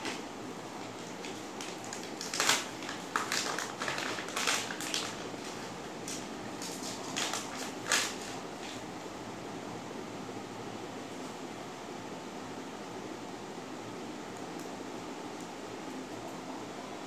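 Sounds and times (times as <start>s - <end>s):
plastic packet crackling: 1.0s - 8.4s.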